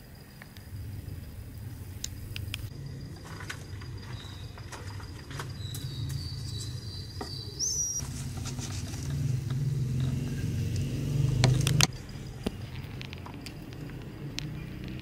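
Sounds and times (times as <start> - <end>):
low rumble: 0.0 - 7.2.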